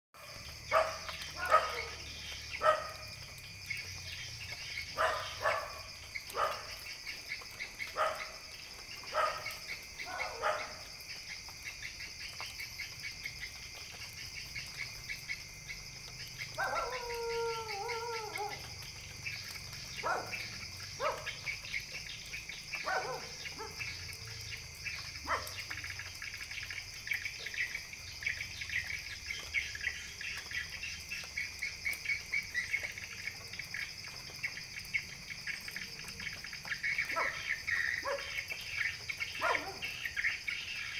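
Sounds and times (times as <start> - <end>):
dog barking: 0.7 - 2.0, 2.6 - 3.0, 5.0 - 6.8, 7.9 - 8.4, 9.1 - 10.9, 16.6 - 18.7, 20.0 - 21.4, 22.8 - 23.9, 25.2 - 25.6, 37.1 - 38.5, 39.4 - 40.0
dog howling: 16.6 - 18.7, 39.4 - 39.8.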